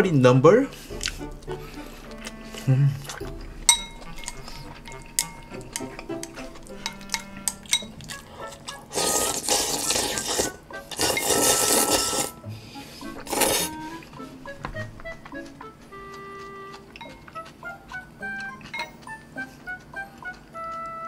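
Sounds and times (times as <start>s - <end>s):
soft background music: 0.0s - 21.0s
chopsticks clinking on bowl: 2.2s - 9.6s, 16.9s - 17.5s
slurping noodles: 7.6s - 14.0s.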